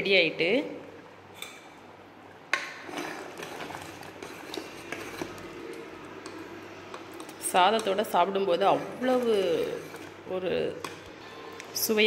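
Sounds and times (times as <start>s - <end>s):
ladle scraping pot: 2.6s - 11.7s.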